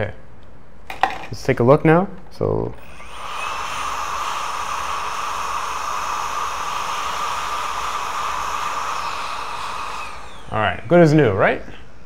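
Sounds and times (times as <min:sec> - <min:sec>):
hot air blower with fan whine: 0:02.8 - 0:11.2.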